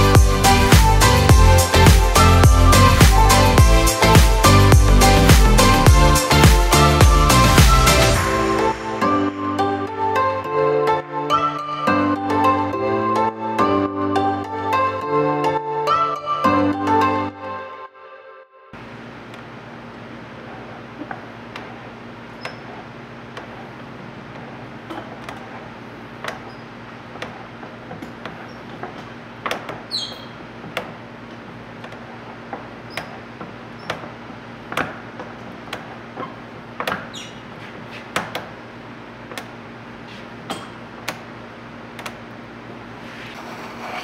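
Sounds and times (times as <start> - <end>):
gentle new age music: 0.0 - 18.0
high squeak: 29.9 - 30.4, 37.1 - 37.5.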